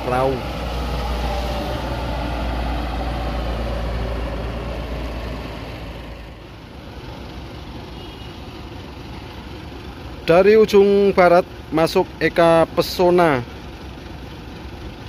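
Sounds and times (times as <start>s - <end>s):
bus engine driving past: 0.0s - 10.2s.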